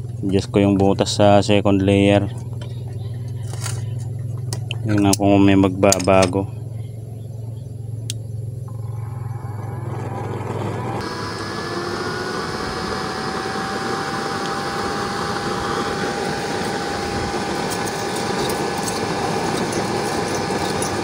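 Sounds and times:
oil burner rushing and whining: 6.5 - 21.0.

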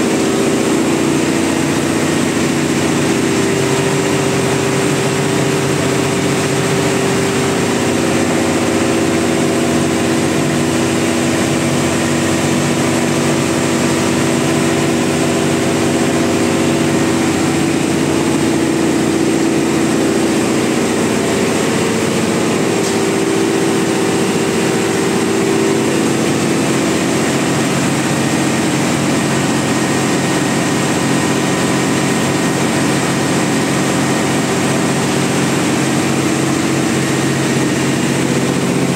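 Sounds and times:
steady hums: 0.0 - 30.6
engine room machinery drone: 0.0 - 38.9.

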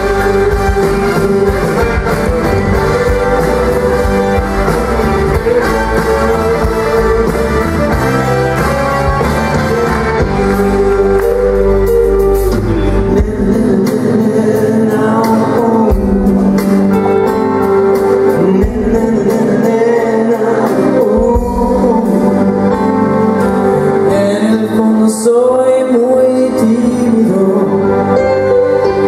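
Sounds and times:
live pop band playing: 0.0 - 29.0
lead vocalist singing: 9.5 - 29.0.

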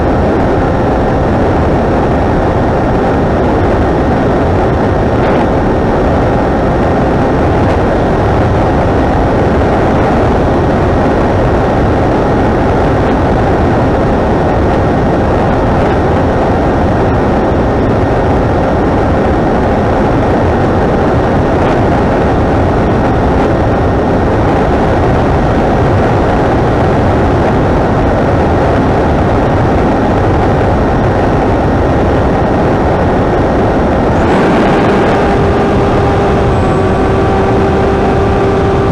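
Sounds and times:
airflow rushing over camera: 0.0 - 38.9
electric motor and propeller whine: 30.4 - 38.9.

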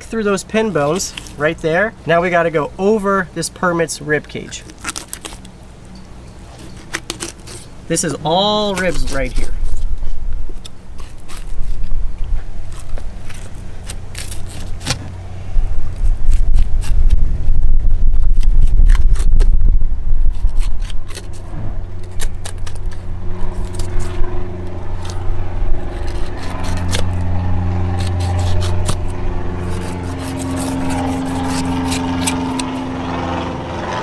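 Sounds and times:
steady engine drone: 0.0 - 34.0
knife scraping over fish bones: 4.6 - 5.5, 6.4 - 15.1, 20.2 - 32.8
heavy low rumble: 7.7 - 34.0.

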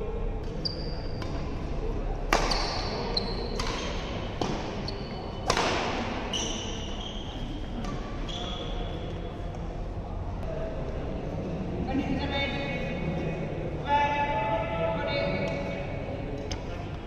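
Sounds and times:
racket hitting shuttlecock: 0.4 - 4.8, 5.4 - 6.3
shoes squeaking on court: 0.5 - 1.5, 2.4 - 5.6, 6.2 - 9.1.

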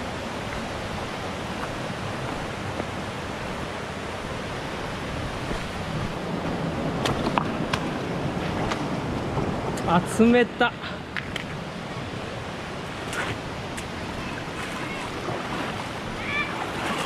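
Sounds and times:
rushing mountain water: 0.0 - 17.0.

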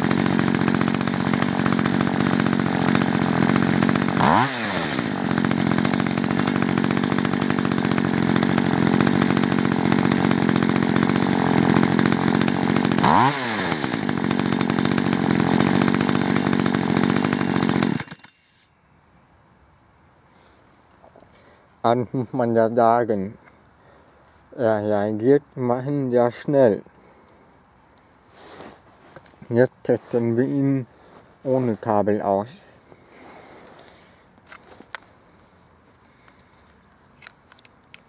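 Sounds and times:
chainsaw engine running: 0.0 - 18.7.

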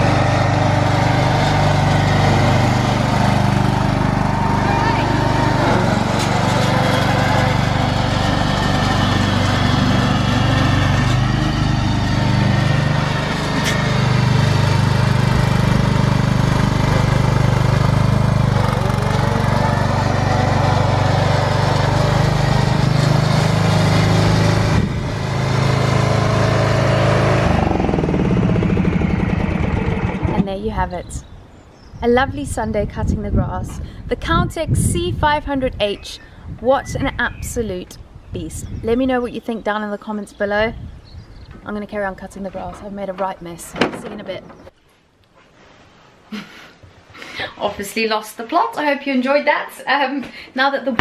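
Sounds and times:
lawn tractor engine running: 0.0 - 30.6.

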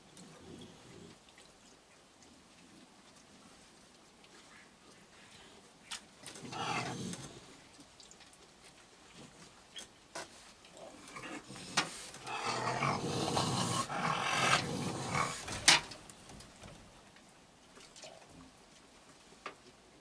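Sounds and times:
raccoons growling: 6.3 - 7.6, 10.8 - 16.0.

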